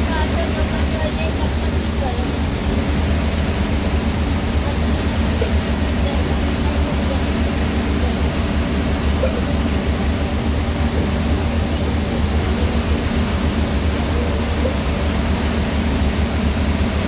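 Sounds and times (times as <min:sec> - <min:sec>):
bus engine rumble: 0:00.0 - 0:17.0
tyres hissing on wet road: 0:00.0 - 0:17.0.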